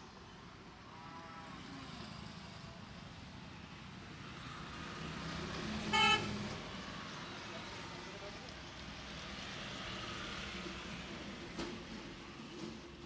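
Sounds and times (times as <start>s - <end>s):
car horn toot: 5.9s - 6.3s.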